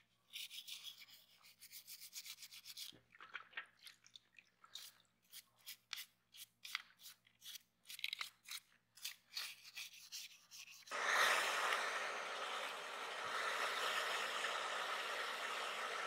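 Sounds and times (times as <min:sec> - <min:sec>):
brush scrubbing plastic in water: 0:00.2 - 0:16.0
loud steady rushing noise: 0:10.9 - 0:16.0.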